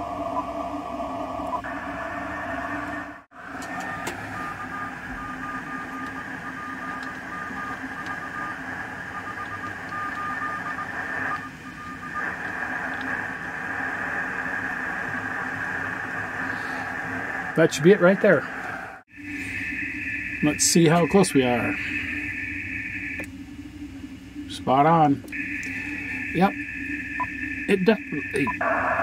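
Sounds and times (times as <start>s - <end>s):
radio static: 0.0s - 23.3s, 24.4s - 29.0s
faint morse code beeps: 3.6s - 13.6s, 25.3s - 28.6s.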